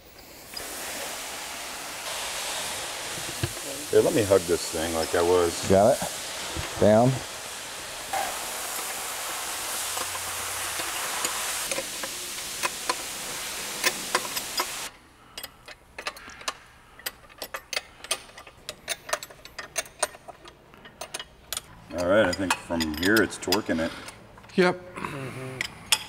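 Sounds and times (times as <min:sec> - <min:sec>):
steady hiss: 0:00.0 - 0:18.5
hand ratchet clicking: 0:15.3 - 0:21.7.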